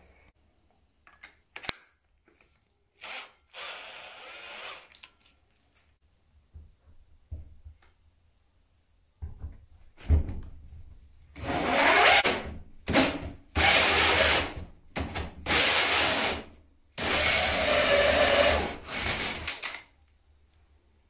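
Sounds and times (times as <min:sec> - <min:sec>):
drill cutting through plasterboard: 0:03.0 - 0:05.0, 0:11.4 - 0:12.4, 0:13.6 - 0:14.5, 0:15.5 - 0:16.4, 0:17.0 - 0:19.6.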